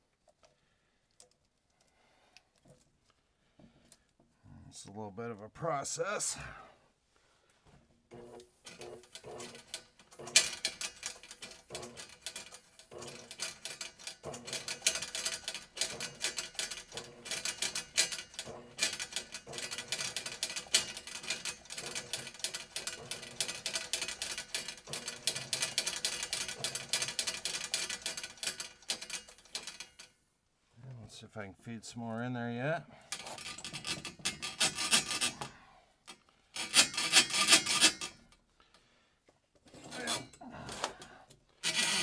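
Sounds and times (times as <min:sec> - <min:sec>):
drain auger cable rattling: 0:08.1 - 0:30.1, 0:33.0 - 0:38.4, 0:41.6 - 0:42.0.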